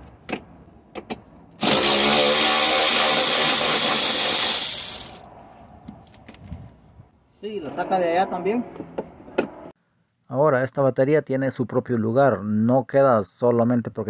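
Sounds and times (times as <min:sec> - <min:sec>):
cordless power ratchet running: 0:01.6 - 0:05.2.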